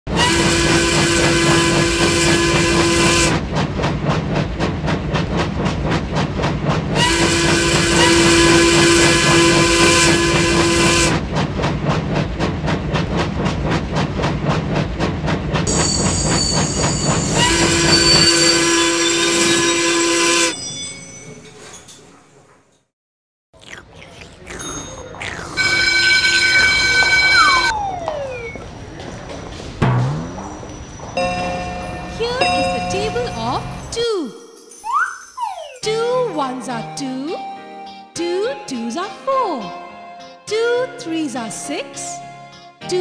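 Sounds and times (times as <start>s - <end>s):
train whistle blasts: 0.1s - 3.4s, 7.0s - 11.2s, 17.3s - 20.6s
steam locomotive chuffing: 0.1s - 20.5s.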